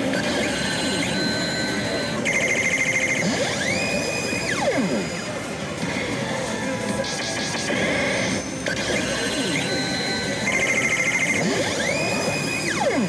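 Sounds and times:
rapid beeping trill: 0.1s - 5.3s, 7.0s - 13.0s.

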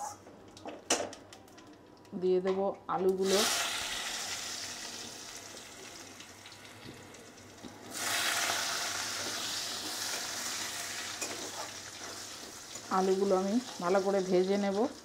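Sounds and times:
potatoes sizzling in oil: 3.2s - 15.0s.

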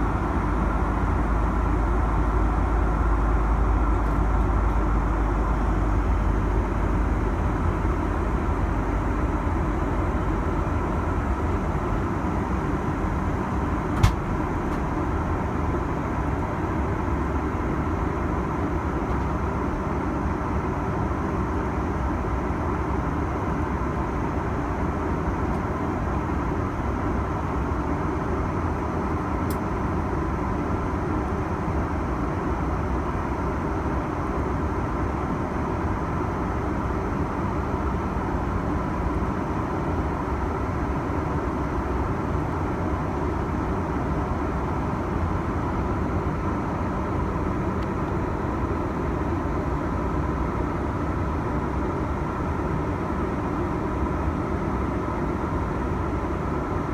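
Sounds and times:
airliner cabin noise: 12.1s - 15.1s.

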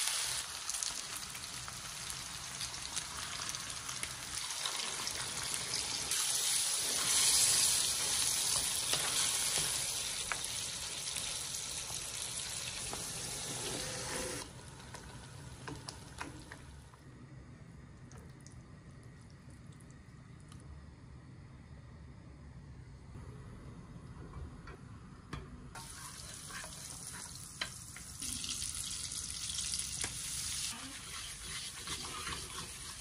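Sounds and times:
sauce sizzling in a frying pan: 0.0s - 16.6s, 25.8s - 33.0s
spatula scraping and tapping: 25.9s - 28.1s, 31.0s - 33.0s.

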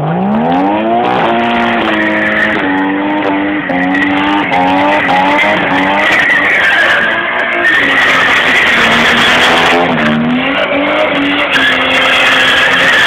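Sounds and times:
car engine revving hard: 0.0s - 13.0s.

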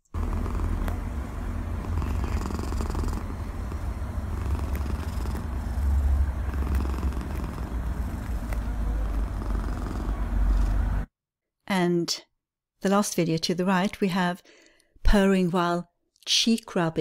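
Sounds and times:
cat purring: 0.0s - 11.1s.

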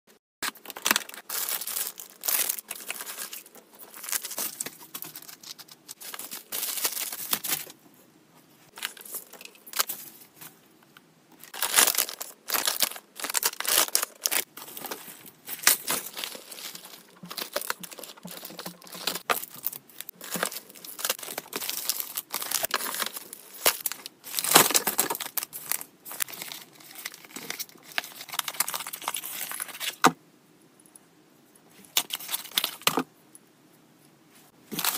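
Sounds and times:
plastic wrapping crinkling: 0.4s - 7.8s, 11.4s - 30.1s.

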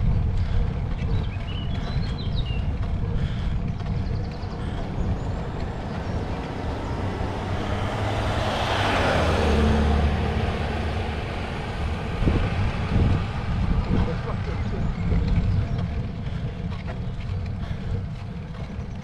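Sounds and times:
steady low rumble: 0.0s - 19.0s
vehicle passing: 0.0s - 19.0s.

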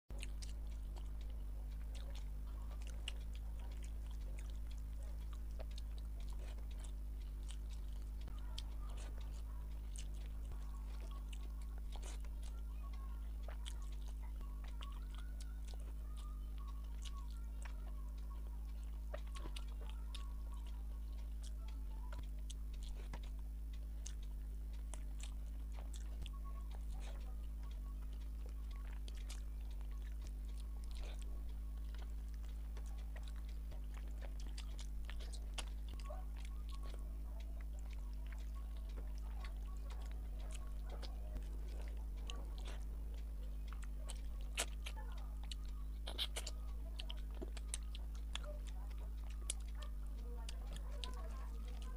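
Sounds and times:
close-miked chewing: 0.1s - 51.9s
steady low hum: 0.1s - 51.9s
wet mouth clicks and smacks: 43.6s - 48.4s.

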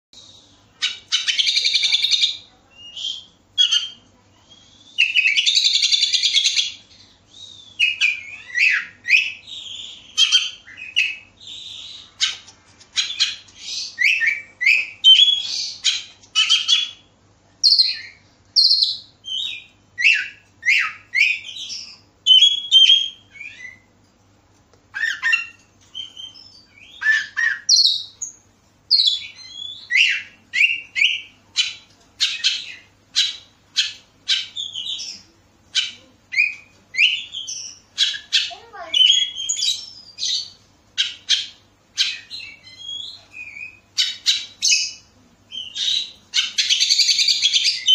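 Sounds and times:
bird harsh rasping calls: 28.9s - 45.0s.

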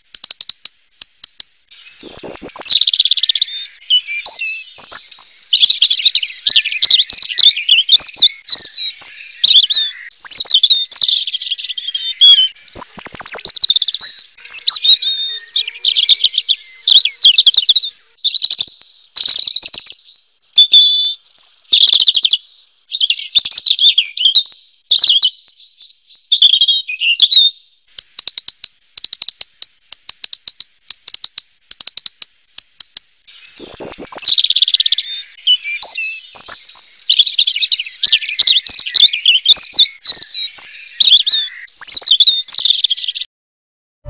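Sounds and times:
bird dry ticks: 0.0s - 3.4s, 27.9s - 35.0s
bird singing warbled phrases: 0.0s - 43.3s.

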